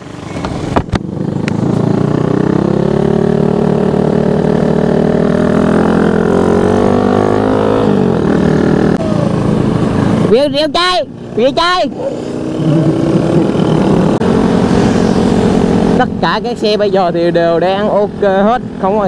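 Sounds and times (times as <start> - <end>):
motorcycle engine under way: 0.0 - 19.0.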